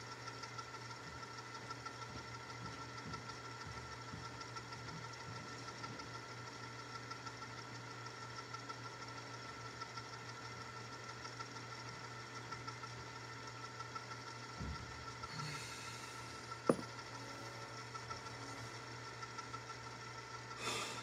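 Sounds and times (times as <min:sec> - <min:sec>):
tape machine whirring: 0:13.7 - 0:21.0.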